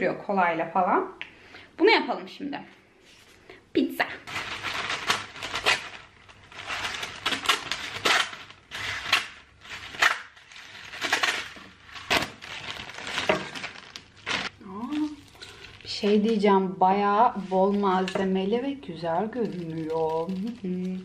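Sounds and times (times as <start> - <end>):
baking paper crinkling and tearing: 4.2 - 16.4, 17.3 - 21.0
plastic food wrapper rustling: 4.2 - 16.4, 17.3 - 21.0.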